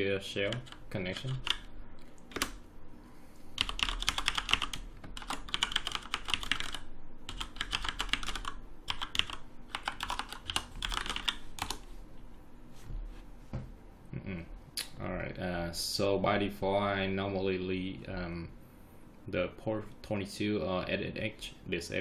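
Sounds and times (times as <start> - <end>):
typing on computer keyboard: 0.4 - 2.6, 3.6 - 11.8.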